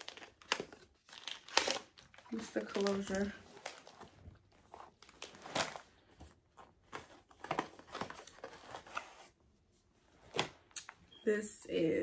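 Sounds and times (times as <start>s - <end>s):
packaging rustling and crinkling: 0.0s - 9.4s.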